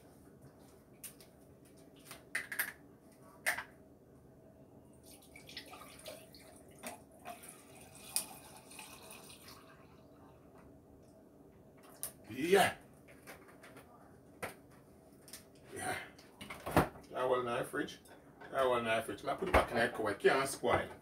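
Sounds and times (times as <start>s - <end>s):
juice pouring into a glass: 5.0s - 10.0s.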